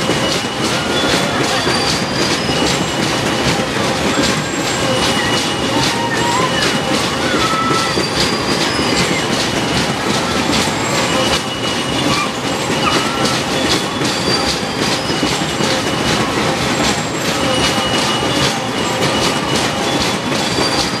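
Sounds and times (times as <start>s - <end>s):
high metallic squeals: 0.0s - 21.0s
ride wheels rumbling on track: 0.0s - 21.0s.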